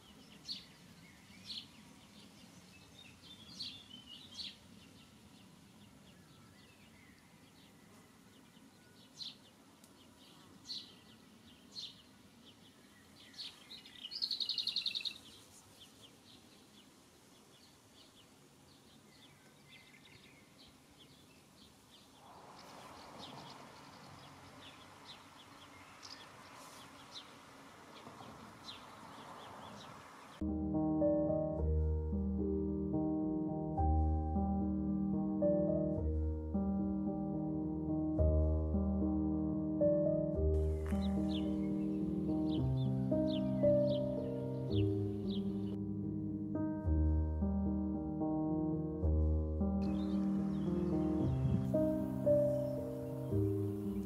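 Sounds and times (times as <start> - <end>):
small birds chirping: 0.0 - 30.5, 40.6 - 45.8, 49.8 - 54.0
faint background noise: 0.0 - 38.8.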